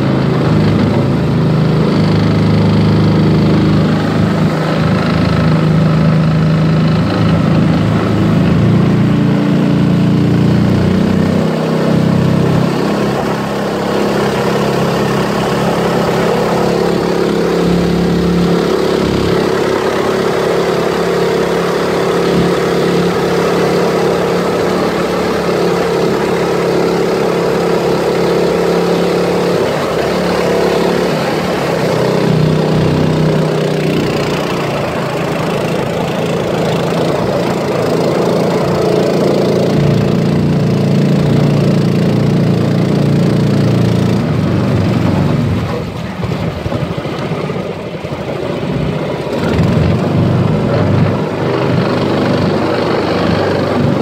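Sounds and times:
outboard motor running: 0.0s - 54.0s.

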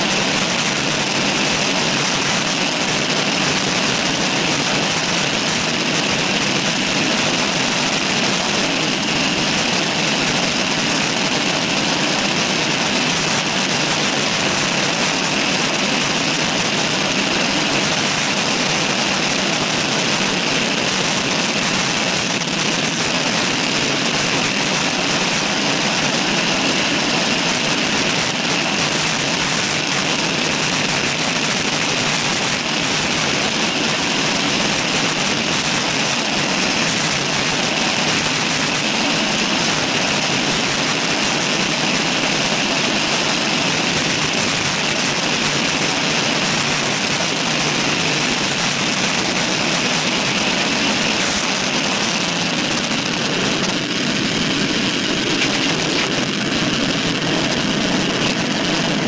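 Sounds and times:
road noise: 47.6s - 59.0s.

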